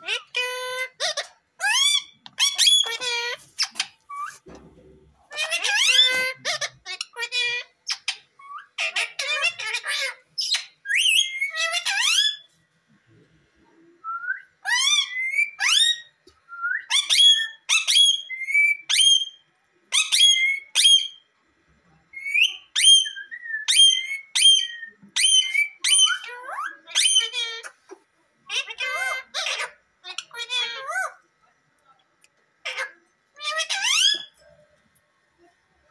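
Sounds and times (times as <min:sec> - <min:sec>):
parakeets chattering: 0:00.0 - 0:04.5, 0:05.3 - 0:12.5, 0:22.2 - 0:31.2, 0:32.6 - 0:34.6.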